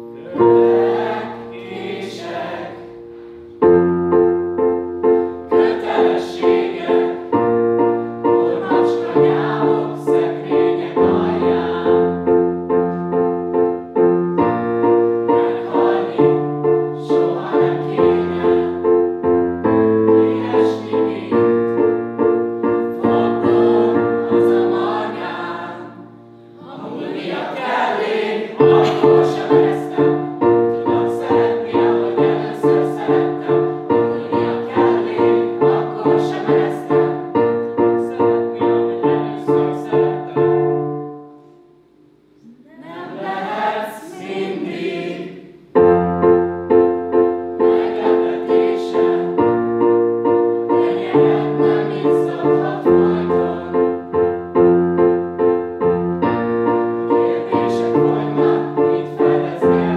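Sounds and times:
voices singing: 0:00.0 - 0:03.0, 0:05.4 - 0:07.5, 0:08.2 - 0:12.5, 0:14.8 - 0:19.1, 0:20.0 - 0:21.9, 0:22.7 - 0:40.8, 0:42.4 - 0:45.5, 0:47.6 - 0:49.6, 0:50.6 - 0:54.1, 0:57.0 - 0:59.9
piano chords: 0:00.0 - 0:59.9.

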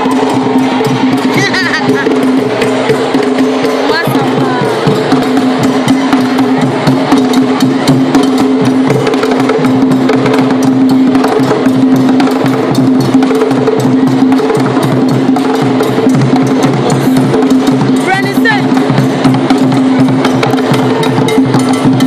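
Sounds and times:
loud dance music: 0:00.0 - 0:11.6, 0:15.7 - 0:21.0.

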